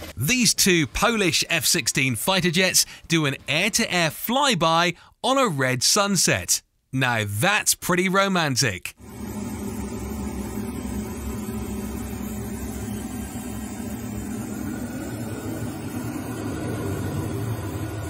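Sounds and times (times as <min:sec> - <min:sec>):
jet engine drone: 0:09.0 - 0:18.0
low hum: 0:09.0 - 0:18.0.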